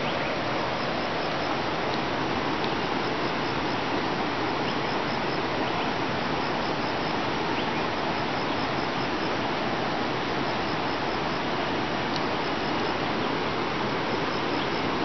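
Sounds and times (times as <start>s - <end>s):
running water rushing: 0.0s - 15.0s
faint high ticks: 1.8s - 3.4s, 12.1s - 13.0s.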